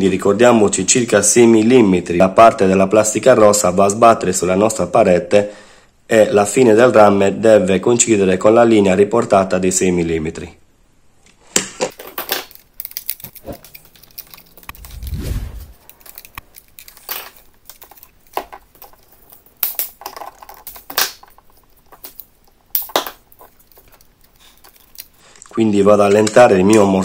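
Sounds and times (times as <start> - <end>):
low rumble: 14.7 - 15.8.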